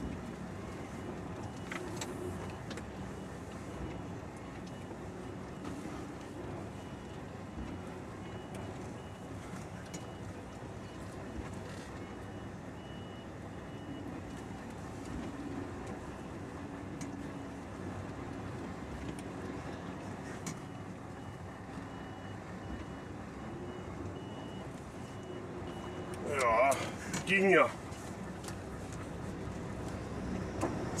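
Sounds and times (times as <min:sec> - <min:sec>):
reversing alarm beeping: 0:06.7 - 0:11.4, 0:12.0 - 0:14.6, 0:20.5 - 0:26.9.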